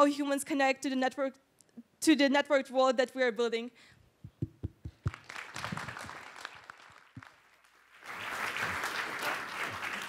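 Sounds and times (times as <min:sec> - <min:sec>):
audience applauding: 0:05.0 - 0:10.0.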